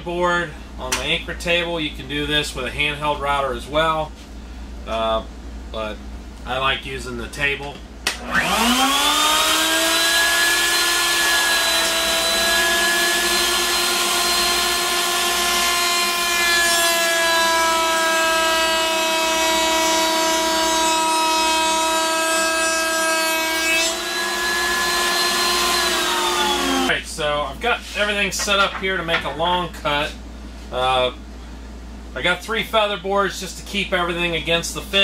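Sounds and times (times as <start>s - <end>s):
router bit cutting wood: 8.2s - 26.9s
router motor high whine: 8.2s - 26.9s.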